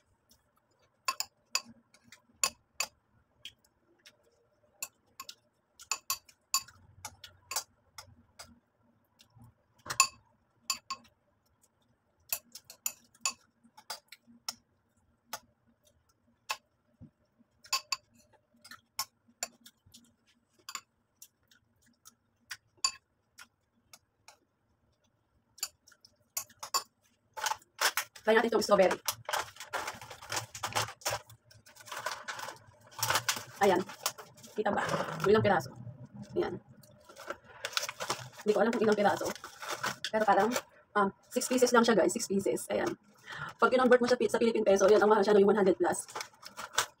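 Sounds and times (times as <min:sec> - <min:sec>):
spoon clinking against ceramic bowl: 0:09.9 - 0:11.1.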